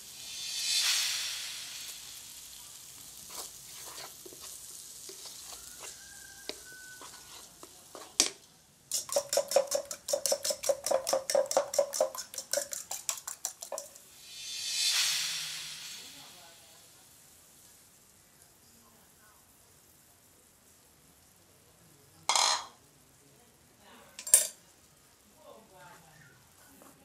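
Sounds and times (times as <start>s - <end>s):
vegetables sizzling in a frying pan: 0.0s - 27.0s
wooden spatula scraping a pan: 3.2s - 14.0s
fork beating eggs in a bowl: 3.3s - 14.0s.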